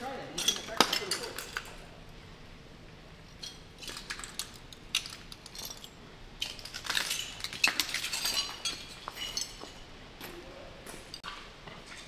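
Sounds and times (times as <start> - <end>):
footsteps crunching on broken glass: 6.7 - 9.9.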